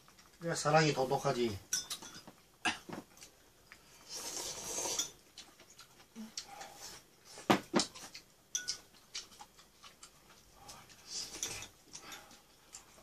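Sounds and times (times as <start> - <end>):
soft hissing: 3.7 - 5.2.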